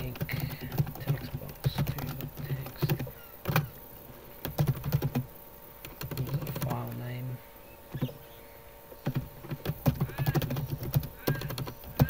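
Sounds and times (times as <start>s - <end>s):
computer keyboard typing: 0.0s - 3.8s, 4.4s - 7.0s, 9.0s - 12.0s.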